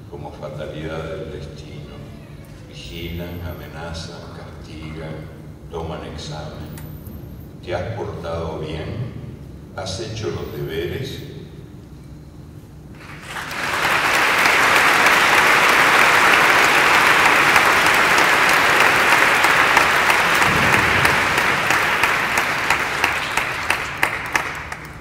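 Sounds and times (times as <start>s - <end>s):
audience applauding: 13.0s - 25.0s.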